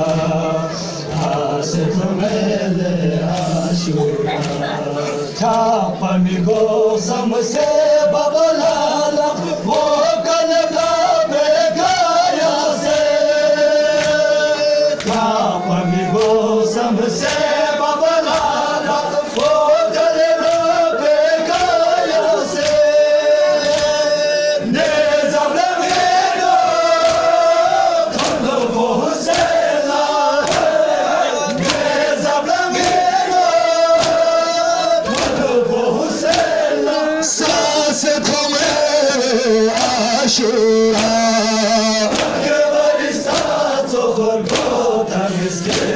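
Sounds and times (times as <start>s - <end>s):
men chanting a lament in unison: 0.0s - 45.9s
chest-beating slaps: 15.0s - 15.4s, 27.0s - 27.4s, 28.1s - 29.6s, 30.4s - 30.8s, 31.5s - 32.1s, 32.7s - 33.2s, 33.9s - 34.3s, 35.0s - 35.6s, 36.2s - 36.6s, 42.0s - 42.5s, 43.2s - 43.7s, 44.4s - 44.9s, 45.6s - 45.9s.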